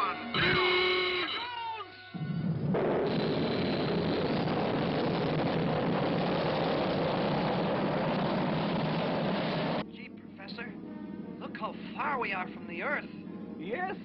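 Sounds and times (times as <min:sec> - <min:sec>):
cartoon rocket engine rushing: 0:02.6 - 0:09.8.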